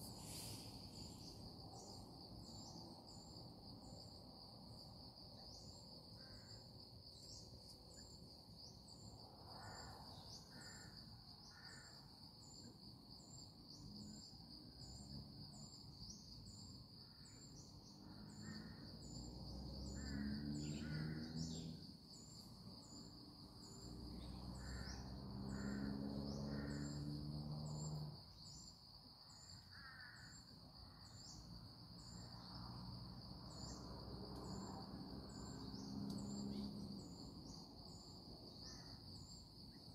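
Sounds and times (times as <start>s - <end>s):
insect drone: 0.0s - 39.9s
crows cawing: 24.6s - 25.9s, 29.8s - 30.3s.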